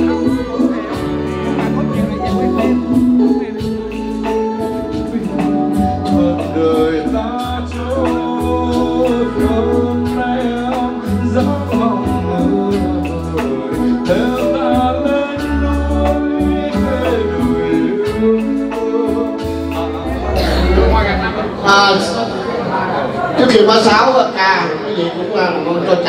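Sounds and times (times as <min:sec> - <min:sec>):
song with steady beat: 0:00.0 - 0:22.2
lead melody of held notes: 0:00.0 - 0:22.7
pulsing bass line: 0:20.0 - 0:22.2.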